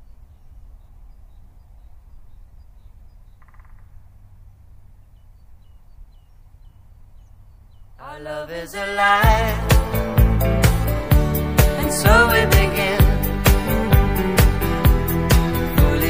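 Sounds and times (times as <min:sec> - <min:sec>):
bird chirping: 0:00.0 - 0:08.2
music: 0:09.2 - 0:16.0.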